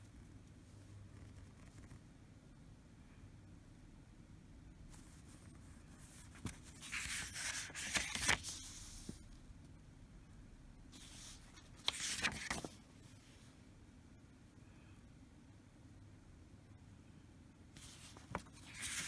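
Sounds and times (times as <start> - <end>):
paper pages rustling: 4.9 - 9.2, 11.0 - 13.2, 17.8 - 19.0
paper crackles: 5.0 - 9.2, 11.0 - 12.9, 17.8 - 19.0.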